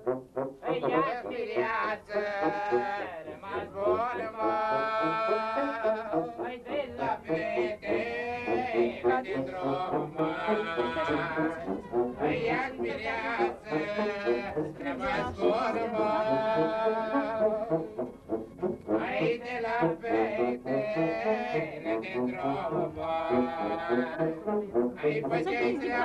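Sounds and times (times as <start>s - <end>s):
live band music: 8.7s - 22.8s.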